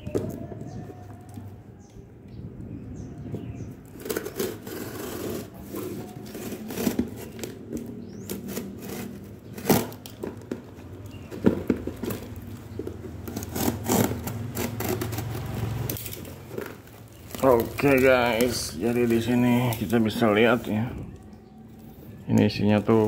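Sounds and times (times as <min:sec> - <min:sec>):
knife slitting packing tape: 0:03.9 - 0:10.2, 0:13.3 - 0:16.4
cardboard rustling and crinkling: 0:03.9 - 0:21.4.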